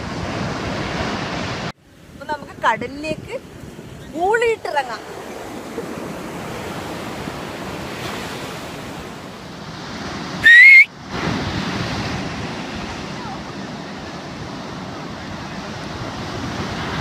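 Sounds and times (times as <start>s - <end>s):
sea surf breaking on sand: 0.0s - 17.0s
loud rising whistle: 10.4s - 10.9s.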